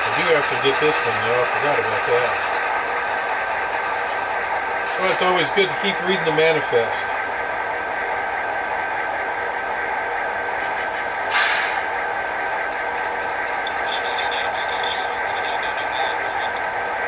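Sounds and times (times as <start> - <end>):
diesel engine running: 0.0 - 17.0
short hiss: 10.7 - 11.8.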